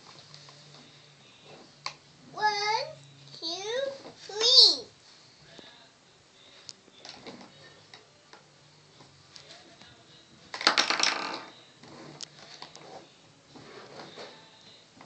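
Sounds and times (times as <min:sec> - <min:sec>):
plastic toy cart clicks and knocks: 0:10.5 - 0:11.6.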